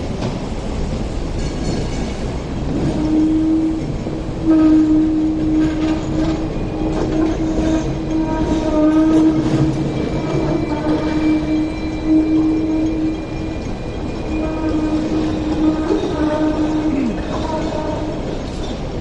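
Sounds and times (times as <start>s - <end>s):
electric tram humming: 0.0s - 19.0s.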